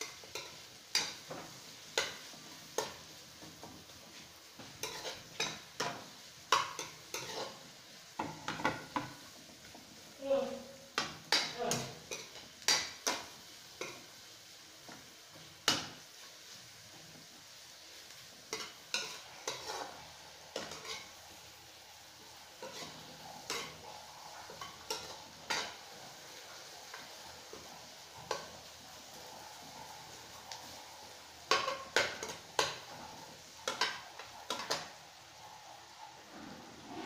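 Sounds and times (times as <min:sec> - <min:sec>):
onions sizzling in oil: 0:00.0 - 0:37.0
metal spoon scraping pan: 0:04.6 - 0:07.6, 0:18.5 - 0:21.2, 0:22.6 - 0:25.8.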